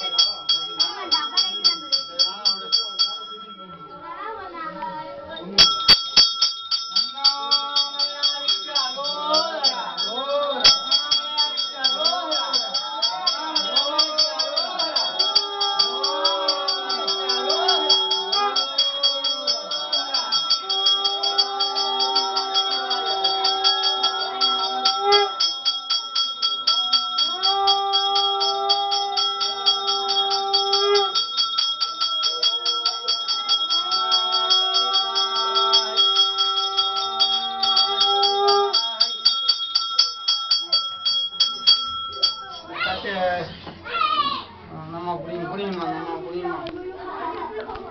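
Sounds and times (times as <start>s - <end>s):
hand bell rung rapidly: 0.0s - 4.3s, 5.5s - 42.8s
person chanting: 7.0s - 39.3s.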